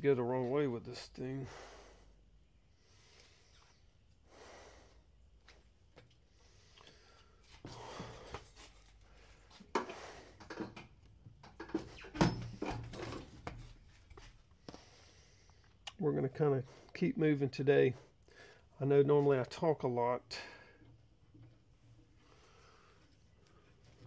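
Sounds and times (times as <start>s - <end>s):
person breathing: 1.4s - 5.2s, 6.2s - 10.4s, 14.6s - 15.8s, 18.1s - 18.7s, 22.2s - 23.8s.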